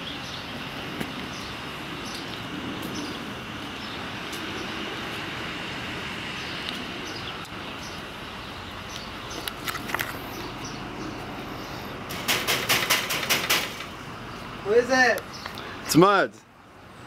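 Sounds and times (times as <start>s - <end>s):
outdoor background hum: 0.0s - 17.0s
knocking on metal gate: 12.1s - 13.9s.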